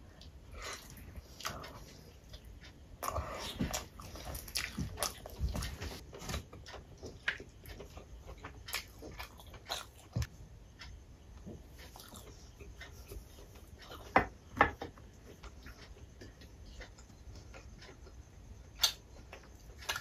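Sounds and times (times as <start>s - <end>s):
wet chewing and lip-smacking: 0.1s - 6.0s, 6.6s - 10.3s.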